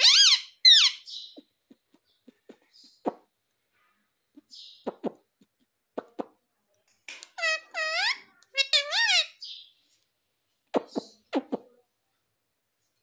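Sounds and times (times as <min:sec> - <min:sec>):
parrot shrill calls: 0:00.0 - 0:01.4, 0:07.4 - 0:09.4.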